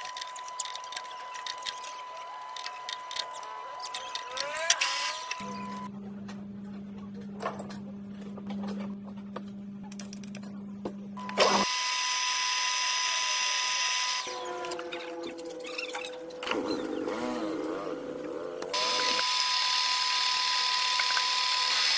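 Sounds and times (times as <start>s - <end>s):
drill bit cutting metal whine: 11.4s - 15.0s, 18.8s - 21.9s.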